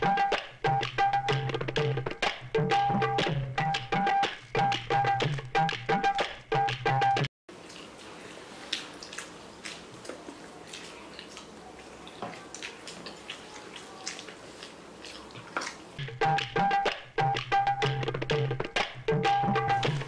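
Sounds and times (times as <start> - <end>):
tabla music: 0.0 - 7.3, 16.0 - 20.0
chewing and slurping noodles: 7.6 - 15.9.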